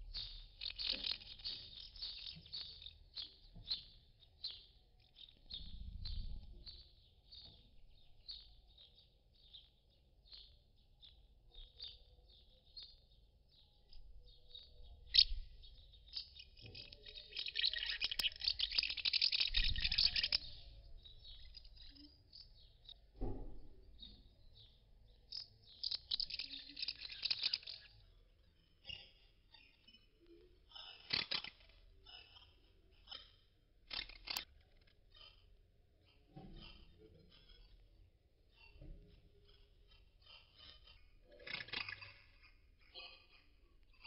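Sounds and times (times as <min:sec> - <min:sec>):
house martins twittering: 0:00.0 - 0:23.1, 0:24.0 - 0:34.5.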